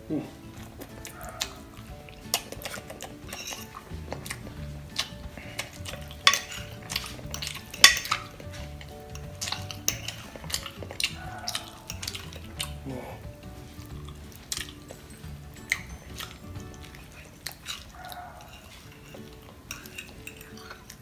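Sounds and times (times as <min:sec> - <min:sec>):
fork clinking on glass dish: 0:02.3 - 0:03.9, 0:05.0 - 0:12.8, 0:14.6 - 0:20.9.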